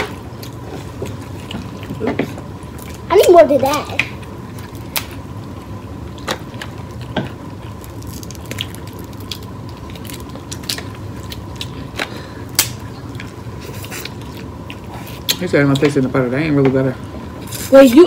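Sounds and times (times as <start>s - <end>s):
chewing: 0.0s - 3.1s, 4.0s - 15.9s
crab legs cracking: 4.0s - 15.9s.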